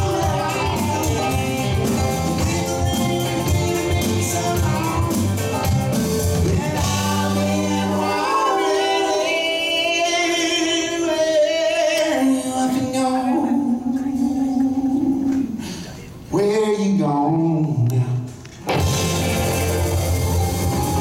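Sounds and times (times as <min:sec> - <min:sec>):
bass and drums: 0:00.0 - 0:08.1, 0:18.6 - 0:21.0
keyboard and guitar: 0:00.0 - 0:09.1, 0:18.6 - 0:21.0
people singing harmonies: 0:00.0 - 0:15.7.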